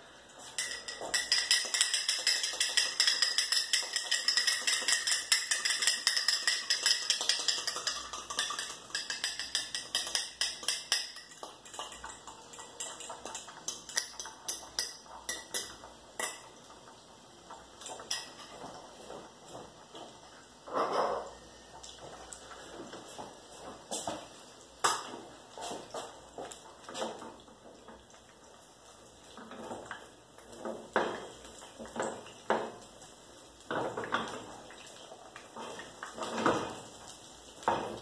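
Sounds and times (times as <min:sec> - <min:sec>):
utensil clinking against glass bowl: 0:00.6 - 0:16.4.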